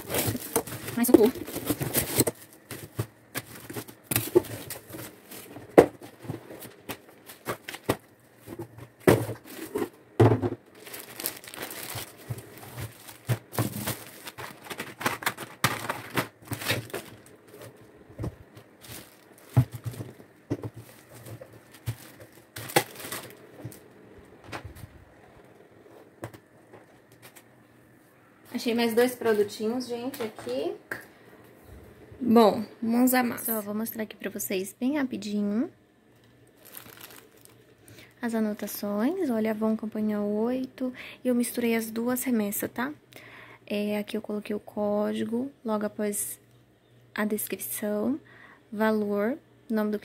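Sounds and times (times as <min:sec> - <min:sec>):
plastic packaging crinkling: 0:00.0 - 0:10.0, 0:10.7 - 0:23.8, 0:36.4 - 0:37.8
items knocking when set down: 0:00.0 - 0:23.8.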